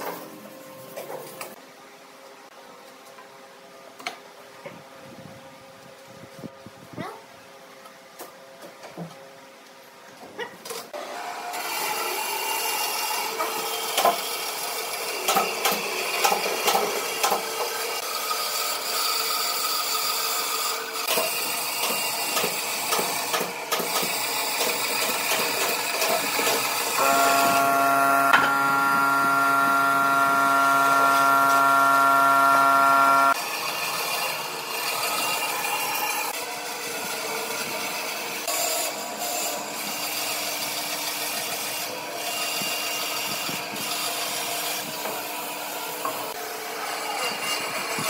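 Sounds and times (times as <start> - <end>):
bandsaw cutting wood: 24.0 - 33.4
steady pitched whine: 27.0 - 33.4.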